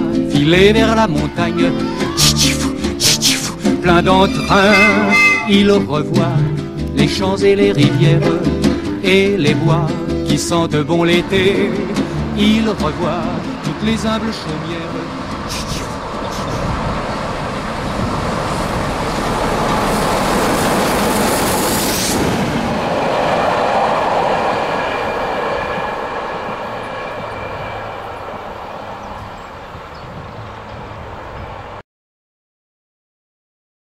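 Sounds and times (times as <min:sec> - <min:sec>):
steam train passing: 0:00.0 - 0:31.8
wheels clickety-clack: 0:11.0 - 0:31.7.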